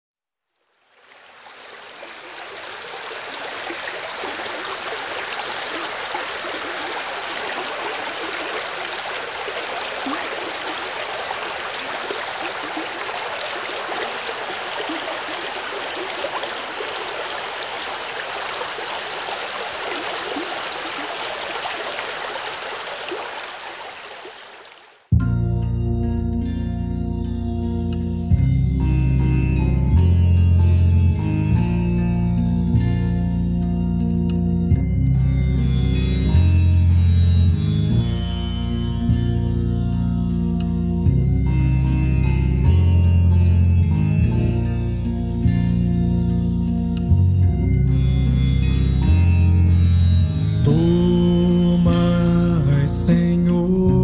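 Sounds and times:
stream water flowing over rocks: 0.6s - 25.1s.

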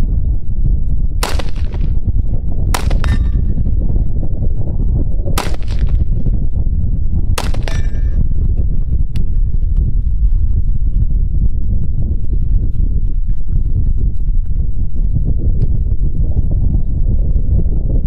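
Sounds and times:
low rumble: 0.0s - 18.0s
rifle shots: 1.2s - 2.0s, 2.8s - 3.5s, 5.4s - 6.1s, 7.4s - 8.2s.

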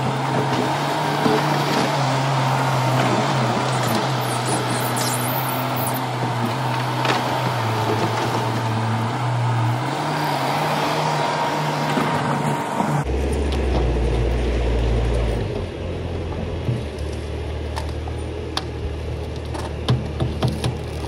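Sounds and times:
loader diesel engine running: 0.0s - 21.0s.

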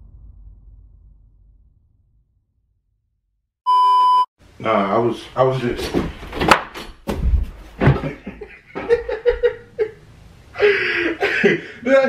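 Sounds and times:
man laughing: 7.9s - 10.0s, 10.6s - 12.0s.

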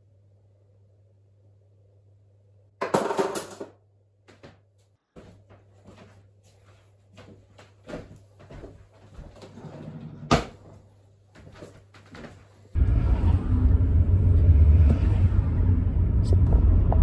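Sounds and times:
steady low hum: 10.8s - 17.0s.

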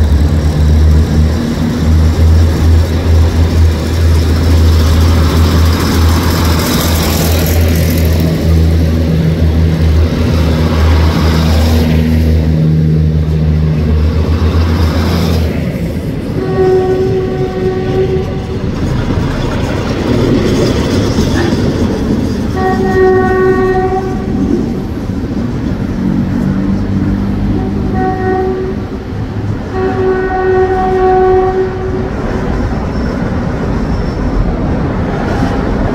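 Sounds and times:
diesel train engine humming: 0.0s - 35.9s
train horn blasts: 16.3s - 18.8s, 22.5s - 24.8s, 27.4s - 32.2s.

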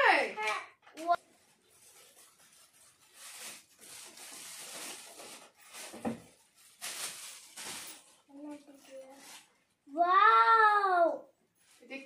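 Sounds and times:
foil gift wrap crinkling: 1.2s - 9.8s.

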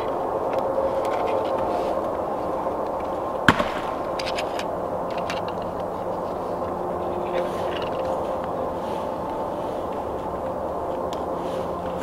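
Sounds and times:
twigs clicking: 0.0s - 12.0s
dry stick snapping: 7.8s - 12.0s.

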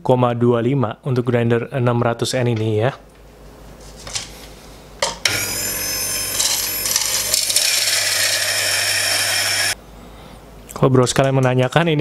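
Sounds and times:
coffee grinder motor whining: 5.3s - 9.8s.

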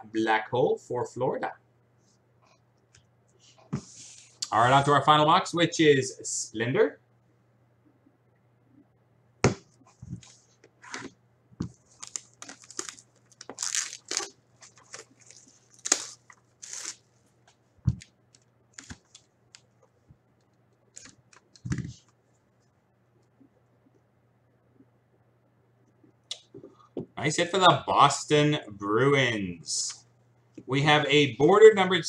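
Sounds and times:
plastic wrap crackling and tearing: 11.8s - 17.1s.

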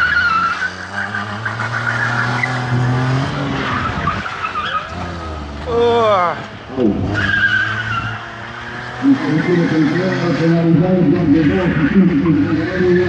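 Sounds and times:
tyres squealing on tarmac: 0.0s - 8.4s
car engine revving: 0.0s - 13.0s.

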